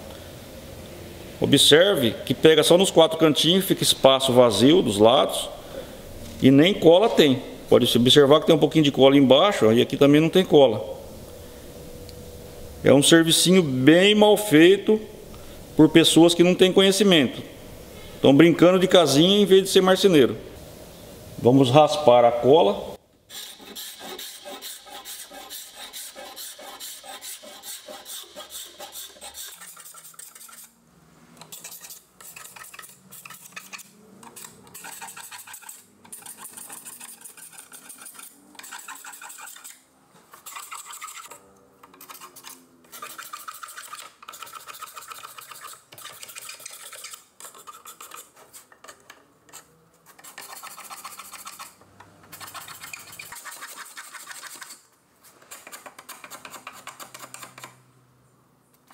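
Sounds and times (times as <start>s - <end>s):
scraping glue off wood: 23.3s - 30.8s, 31.4s - 54.8s.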